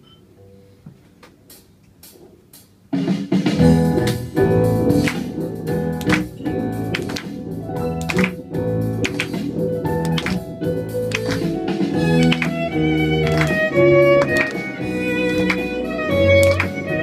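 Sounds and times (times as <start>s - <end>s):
sharp percussive hits: 6.0s - 7.4s, 8.0s - 8.4s, 9.0s - 10.4s.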